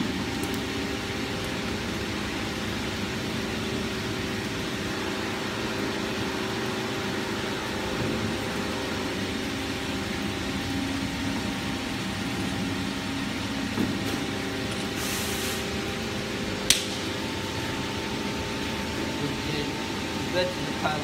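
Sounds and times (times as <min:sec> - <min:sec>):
mixing mill humming: 0:00.0 - 0:21.0
sharp click: 0:16.7 - 0:17.0.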